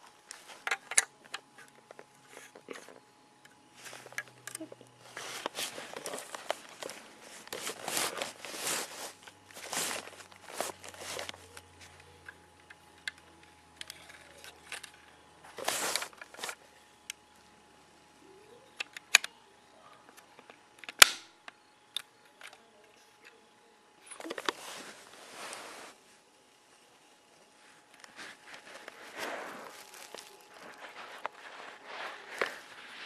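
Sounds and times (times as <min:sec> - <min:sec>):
plastic parts scraping: 0:00.2 - 0:16.6, 0:24.1 - 0:26.0, 0:27.8 - 0:33.0
plastic catapult snapping: 0:20.8 - 0:21.3.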